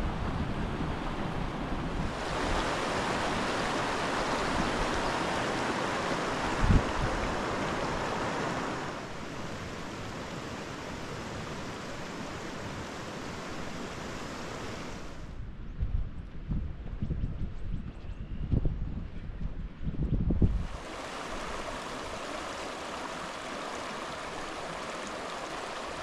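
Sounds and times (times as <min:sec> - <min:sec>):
wind buffeting microphone: 0:00.0 - 0:09.0, 0:14.8 - 0:22.4
running water rushing: 0:02.0 - 0:15.2, 0:20.6 - 0:26.0.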